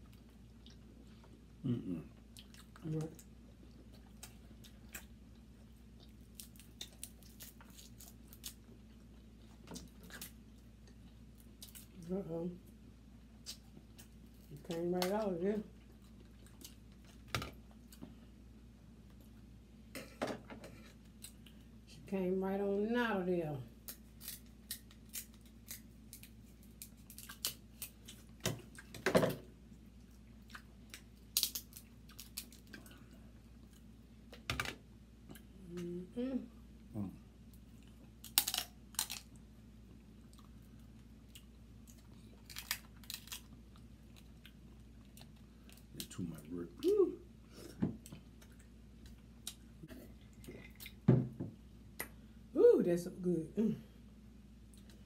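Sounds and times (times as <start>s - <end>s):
chewing: 0.0s - 1.4s
wet chewing and smacking: 0.0s - 1.5s, 2.2s - 12.0s, 29.6s - 34.5s
crab shells cracking: 23.9s - 28.2s, 30.9s - 32.8s, 38.2s - 39.4s, 42.4s - 43.5s.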